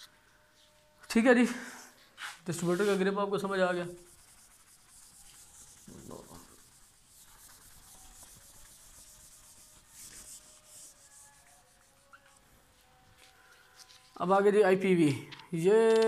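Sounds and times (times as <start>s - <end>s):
eraser rubbing on whiteboard: 1.7s - 12.4s.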